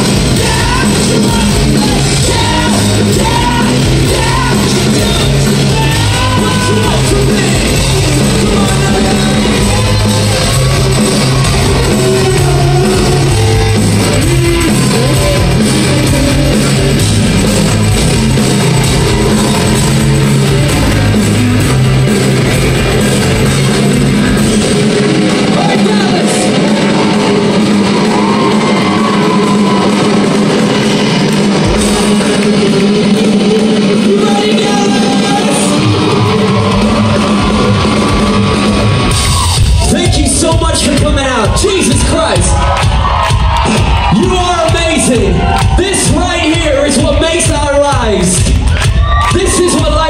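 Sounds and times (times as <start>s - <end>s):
live rock band playing: 0.0s - 50.0s
person singing: 0.1s - 17.0s.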